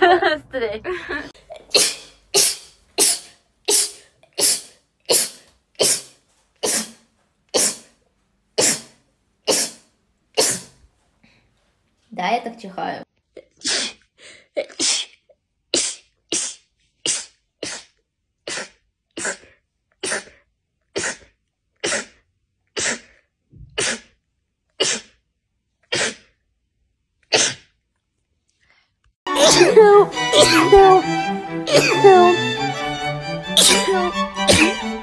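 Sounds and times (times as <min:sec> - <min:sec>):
woman sneezing: 0:01.7 - 0:07.0, 0:07.6 - 0:07.9, 0:08.6 - 0:09.8, 0:10.4 - 0:10.8, 0:29.3 - 0:31.0, 0:31.7 - 0:32.4, 0:33.6 - 0:34.8.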